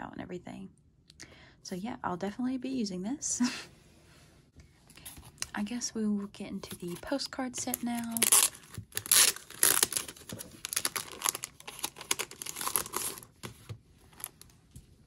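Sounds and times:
plastic wrapping crinkling and tearing: 6.6 - 14.5.

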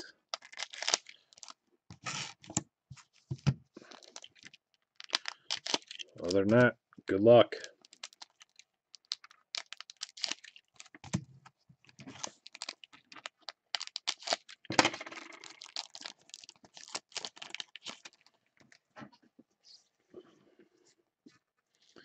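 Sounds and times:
foil wrapper crinkling: 0.3 - 6.6, 7.6 - 11.2, 11.8 - 18.8.

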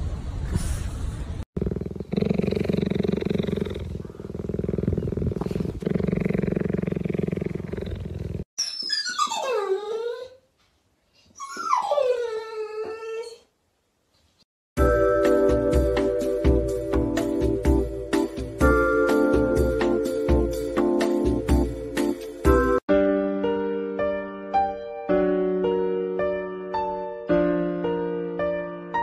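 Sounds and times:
cheetah purring: 1.6 - 8.5
dog whining: 8.6 - 10.6, 11.2 - 13.5.

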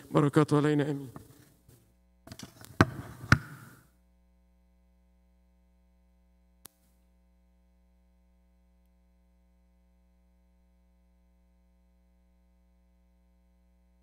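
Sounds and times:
faint click: 6.6 - 7.0.

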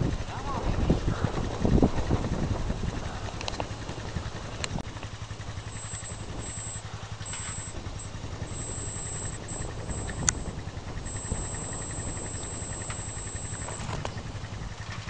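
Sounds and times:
vehicle engine humming: 0.0 - 15.0
sharp click: 5.8 - 10.4, 11.1 - 14.2.

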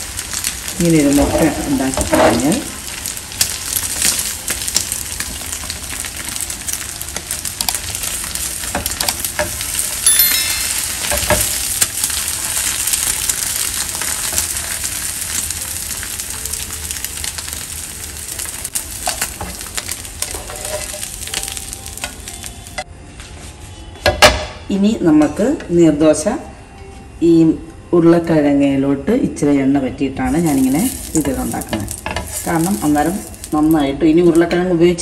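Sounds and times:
egg sizzling in oil: 0.0 - 22.8, 30.3 - 33.8
spatula scraping pan: 20.2 - 21.0.

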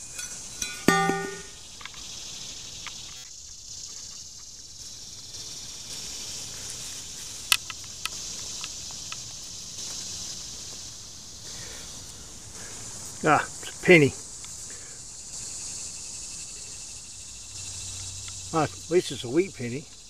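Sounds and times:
steady high hiss: 0.0 - 20.0
shovel blade clanking into turf: 0.1 - 1.5
sharp clicks of crumbling soil: 3.9 - 10.9.

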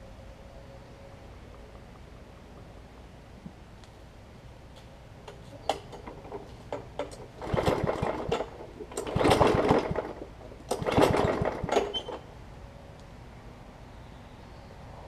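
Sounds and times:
mower engine cranking: 5.3 - 12.3.

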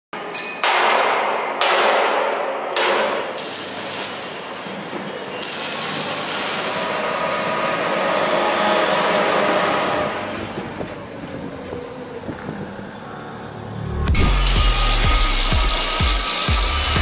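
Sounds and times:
welding torch crackling hiss: 3.1 - 8.7, 14.2 - 17.0
metal shop machine whine: 4.2 - 17.0.

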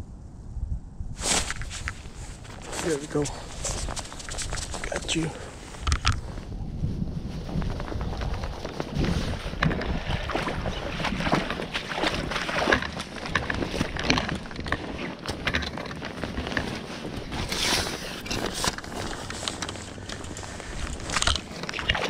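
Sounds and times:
wind rumbling on microphone: 0.0 - 22.0
leaves rustling: 1.2 - 22.0
scuffing footsteps: 1.3 - 5.8.

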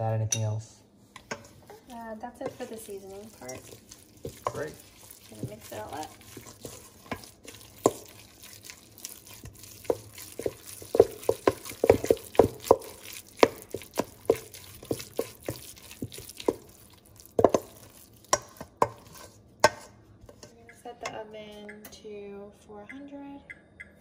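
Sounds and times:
wet squelches of stirring: 0.9 - 21.8.

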